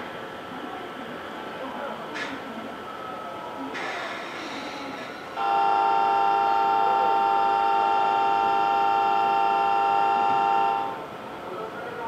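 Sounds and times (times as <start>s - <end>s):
train departure signal tone: 5.4s - 11.0s.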